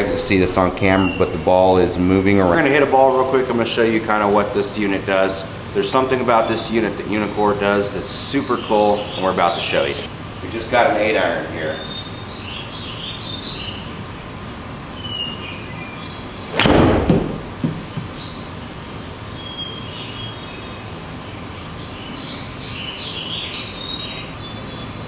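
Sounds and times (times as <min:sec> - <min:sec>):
golf club striking ball: 0:16.5 - 0:18.2
light knocks: 0:16.6 - 0:18.2.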